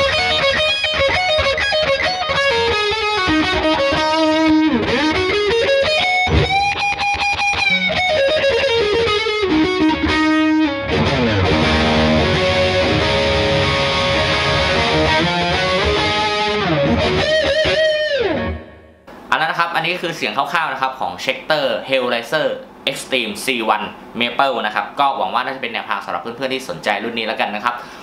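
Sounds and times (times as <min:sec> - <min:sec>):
distorted electric guitar solo: 0:00.0 - 0:19.1.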